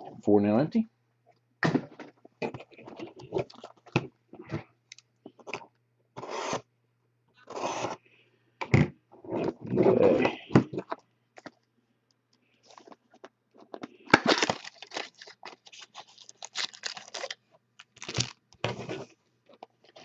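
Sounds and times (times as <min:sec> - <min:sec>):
foil wrapping rustling: 0:14.1 - 0:18.4.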